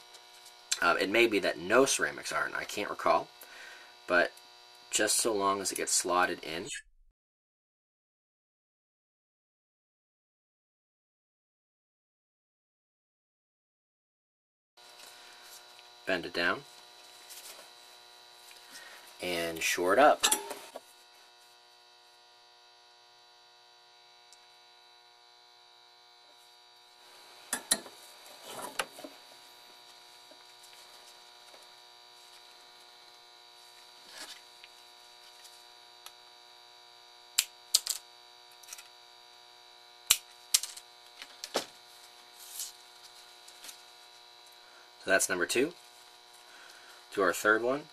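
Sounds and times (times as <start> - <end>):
electrical hum: 0.0 - 6.9, 14.8 - 47.9.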